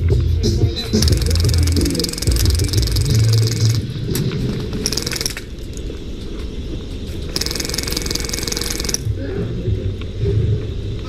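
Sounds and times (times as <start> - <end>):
airsoft minigun rattling bursts: 0.8 - 5.9, 7.3 - 9.1.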